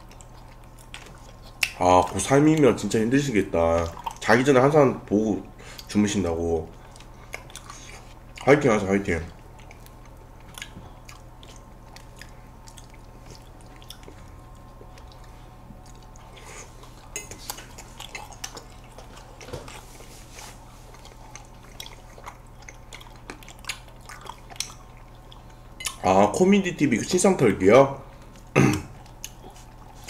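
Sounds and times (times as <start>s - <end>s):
wet eating mouth sounds: 0.0s - 4.6s, 9.3s - 26.4s, 28.2s - 30.0s
low steady hum: 0.0s - 30.0s.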